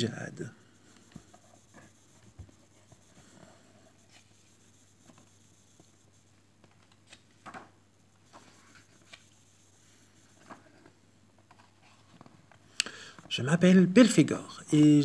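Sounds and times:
faint steady hum: 0:00.0 - 0:15.0
book pages rustling: 0:06.6 - 0:09.4, 0:10.2 - 0:12.6.

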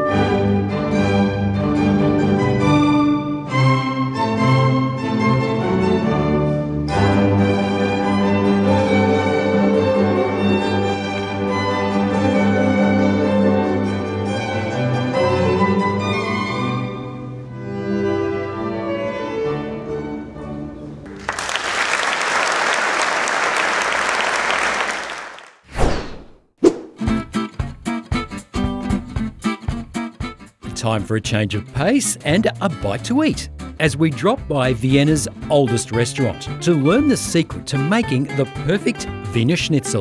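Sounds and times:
string ensemble playing: 0:00.0 - 0:25.1, 0:30.8 - 0:40.0
audience applauding: 0:21.1 - 0:25.7.

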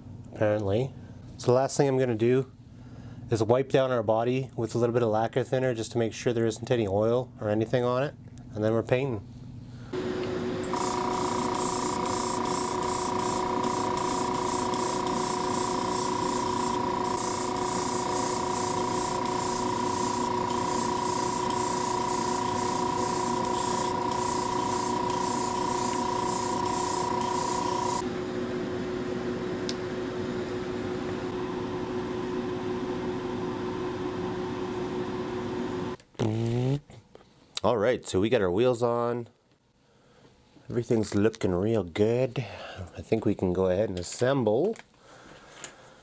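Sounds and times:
steady low hum: 0:09.2 - 0:33.9
air whistling: 0:10.6 - 0:28.0
airbrush spraying in bursts: 0:10.6 - 0:28.0, 0:36.2 - 0:36.8.

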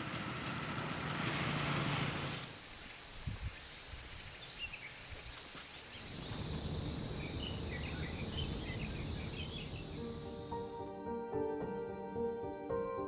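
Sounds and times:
high insect buzz: 0:02.4 - 0:11.0
small birds chirping: 0:02.9 - 0:10.9.

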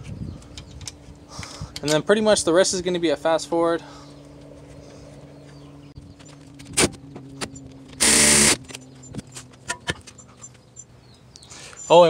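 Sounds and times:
power tool burst: 0:08.0 - 0:08.6.

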